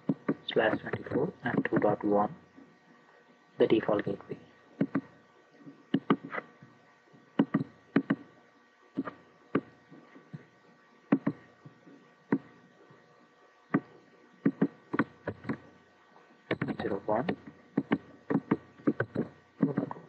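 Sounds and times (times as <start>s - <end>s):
computer mouse clicking: 4.8s - 5.1s, 5.9s - 6.5s, 7.4s - 8.2s, 16.5s - 19.9s.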